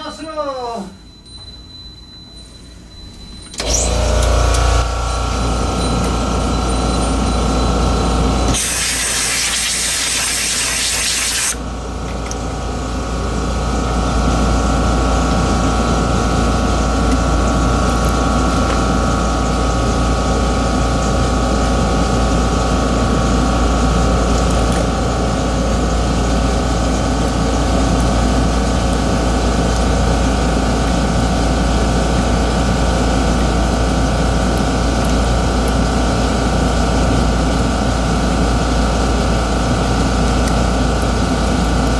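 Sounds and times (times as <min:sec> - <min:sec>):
air blower droning: 0:03.5 - 0:41.9
hissing blast of air: 0:08.5 - 0:11.6.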